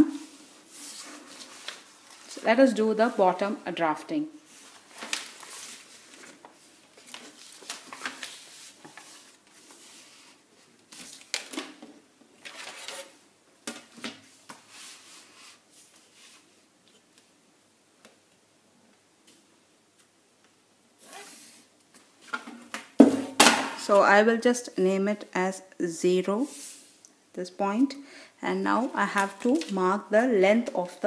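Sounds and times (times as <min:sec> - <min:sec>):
paper rustling: 0:00.2 - 0:02.6, 0:04.5 - 0:11.8, 0:28.8 - 0:31.0.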